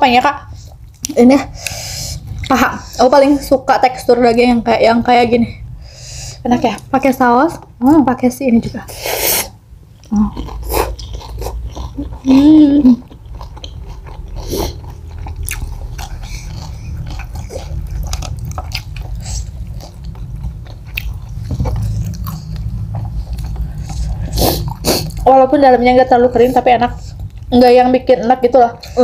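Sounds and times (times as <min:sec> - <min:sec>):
chewing fried chicken: 0:10.0 - 0:25.3.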